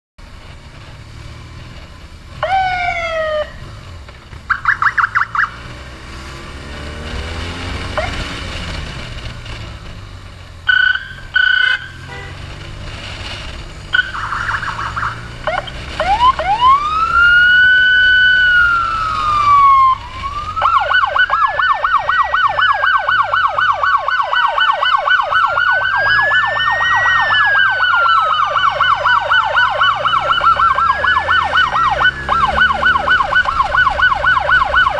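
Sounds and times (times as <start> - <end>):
engine and road rumble: 0.2 - 34.9
electronic emergency siren: 2.4 - 3.6, 4.5 - 5.7, 7.0 - 8.6, 10.6 - 12.3, 13.9 - 34.9.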